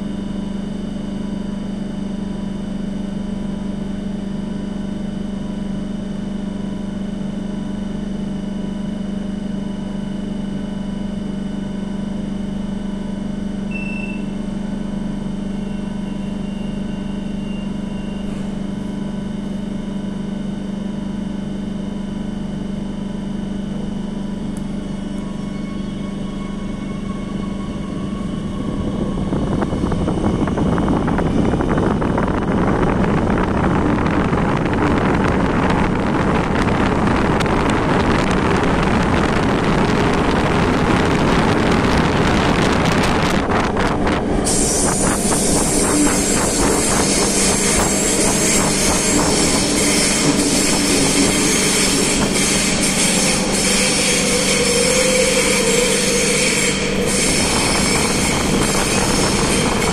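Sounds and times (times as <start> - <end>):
train rumbling through tunnel: 10.0 - 21.1, 23.3 - 59.9
high-pitched wheel squeal: 15.5 - 18.6, 24.9 - 30.8, 44.4 - 59.9.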